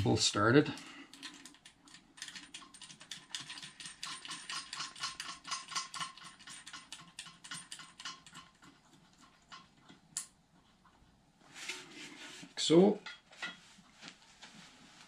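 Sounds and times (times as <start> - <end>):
nut ticking on bolt threads: 1.1 - 10.4.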